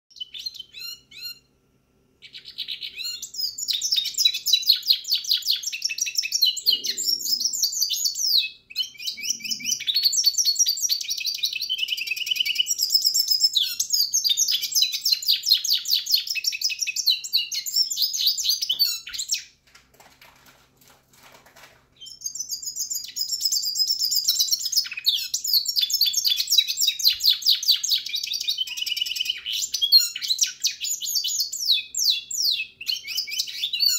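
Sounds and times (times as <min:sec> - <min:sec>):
bird twittering song: 0:02.2 - 0:19.5, 0:22.0 - 0:33.9.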